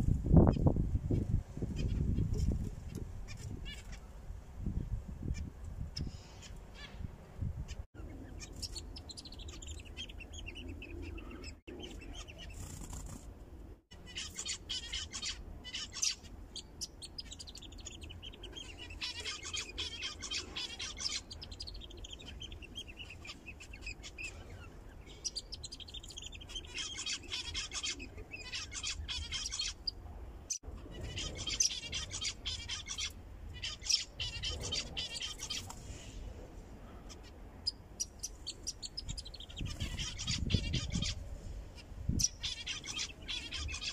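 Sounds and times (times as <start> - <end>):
zebra finches chirping: 8.0 - 13.2, 13.9 - 36.0, 37.1 - 41.2, 41.8 - 43.9.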